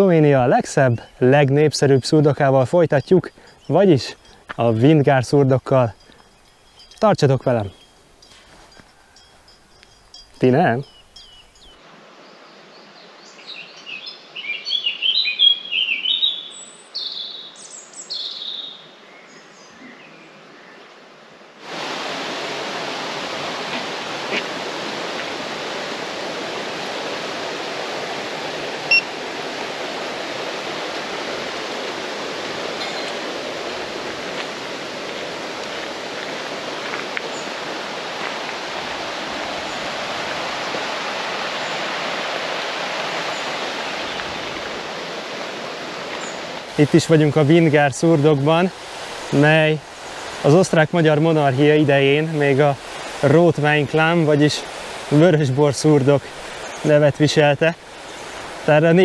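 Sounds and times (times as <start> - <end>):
songbird chirping and singing: 10.7 - 21.0
river rushing: 21.6 - 59.0.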